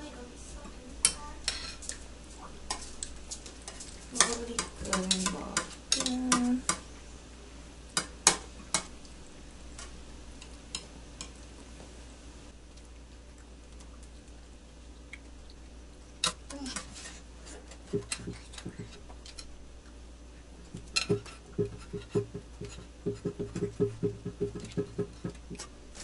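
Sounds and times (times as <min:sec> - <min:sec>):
utensils scraping against a pot: 0:02.7 - 0:06.8, 0:16.2 - 0:19.5, 0:20.7 - 0:23.7.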